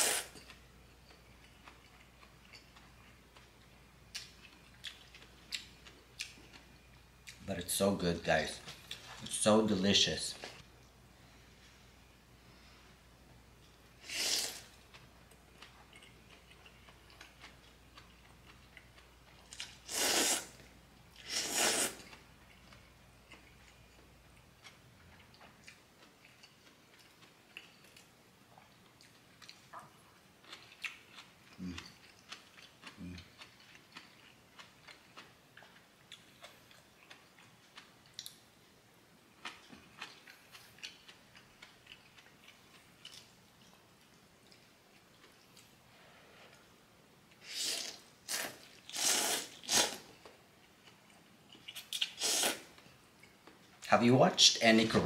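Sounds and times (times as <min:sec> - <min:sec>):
noodle slurping: 0:19.9 - 0:20.6, 0:21.2 - 0:22.0, 0:47.4 - 0:50.0, 0:52.0 - 0:52.7
chewing mouth sounds: 0:50.6 - 0:52.6.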